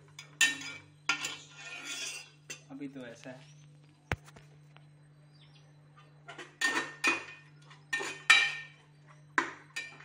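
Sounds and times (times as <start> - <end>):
metal spatula scraping pot: 0.2 - 2.7, 6.3 - 8.8.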